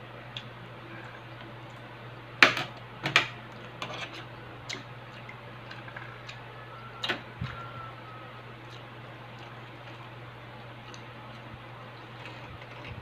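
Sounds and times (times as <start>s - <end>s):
steady low hum: 0.0s - 13.0s
chewing smacks: 4.6s - 7.6s, 8.6s - 13.0s.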